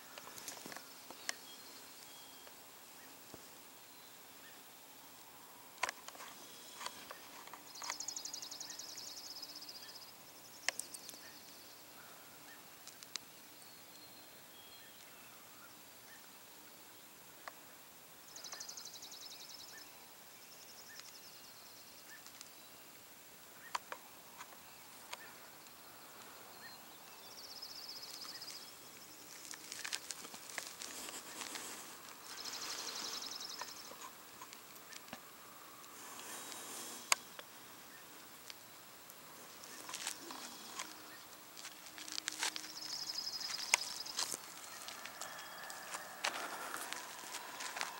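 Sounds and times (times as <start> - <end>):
faint steady background noise: 0.0 - 47.9.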